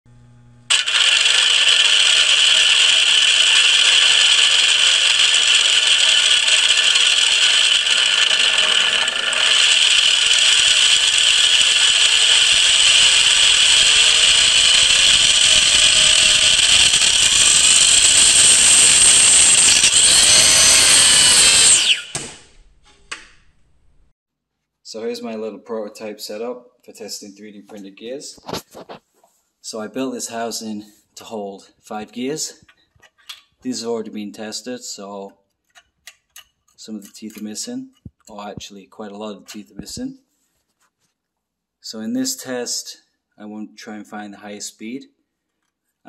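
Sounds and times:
gears whining at high speed: 0:00.1 - 0:22.7.

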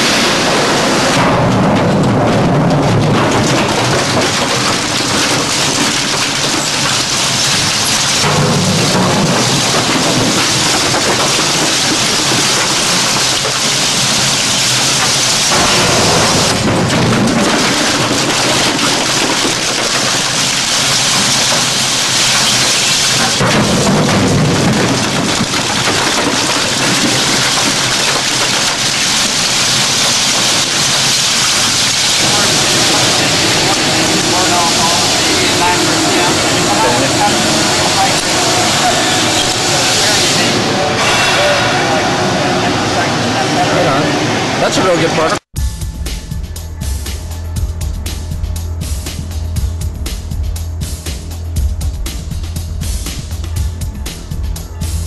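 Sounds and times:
shredder crunching plastic: 0:00.0 - 0:40.7.

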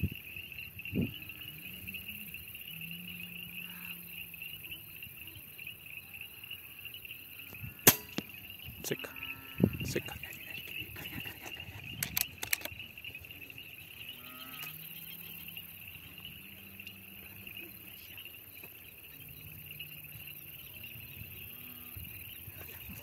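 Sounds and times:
crickets chirring: 0:00.0 - 0:23.0
distant low drawn-out calls: 0:00.0 - 0:23.0
sharp clicks: 0:07.8 - 0:08.4, 0:11.4 - 0:12.9.

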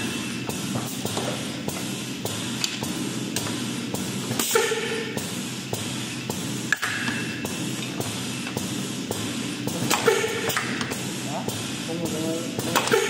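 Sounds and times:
machine humming: 0:00.0 - 0:13.0
sharp machine clicks: 0:06.3 - 0:13.0.

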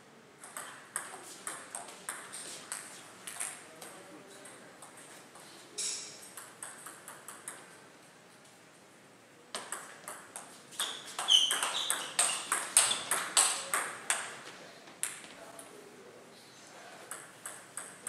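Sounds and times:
table tennis ball clicking: 0:06.3 - 0:07.7, 0:17.1 - 0:18.0
shoe squeaks: 0:10.7 - 0:13.2.

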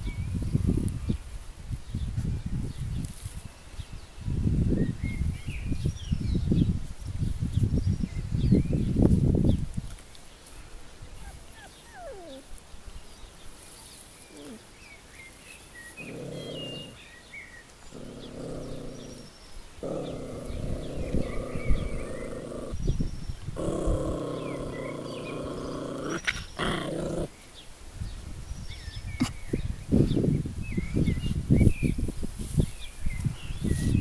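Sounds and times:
dog growling: 0:11.2 - 0:12.5, 0:16.0 - 0:17.1, 0:17.9 - 0:22.8, 0:23.6 - 0:27.4.

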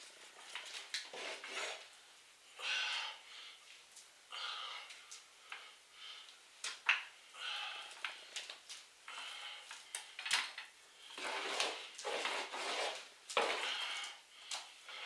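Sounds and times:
hand tool scraping container: 0:01.1 - 0:01.8, 0:11.2 - 0:14.0.

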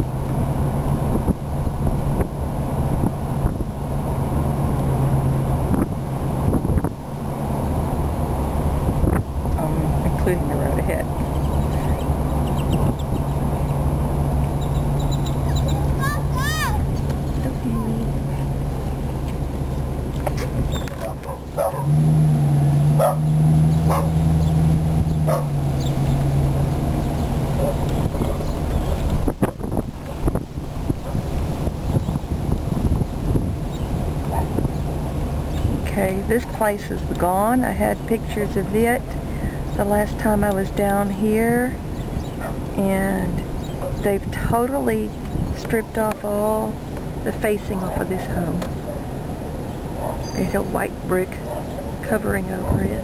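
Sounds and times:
car engine and road noise: 0:00.0 - 0:53.0
small dog barking: 0:21.0 - 0:21.9, 0:23.0 - 0:23.2, 0:23.9 - 0:24.2, 0:25.3 - 0:25.5, 0:50.0 - 0:50.4.

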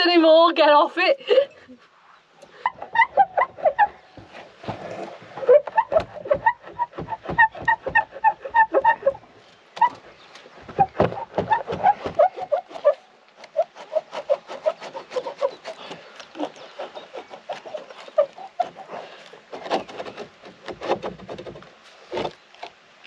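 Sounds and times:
metal bolt squeaking in wood: 0:05.4 - 0:09.2, 0:10.7 - 0:13.7.

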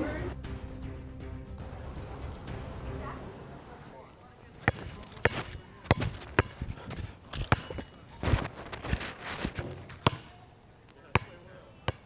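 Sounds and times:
shoes scuffing on court: 0:04.5 - 0:12.0
basketball bouncing on concrete: 0:04.6 - 0:12.0.

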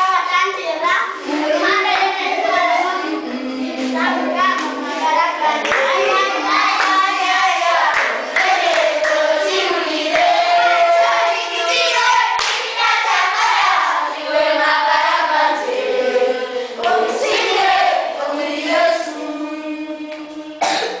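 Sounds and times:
children singing in chorus: 0:00.0 - 0:21.0
hand claps: 0:04.5 - 0:04.8, 0:05.6 - 0:07.1, 0:07.9 - 0:09.2, 0:12.4 - 0:12.7.

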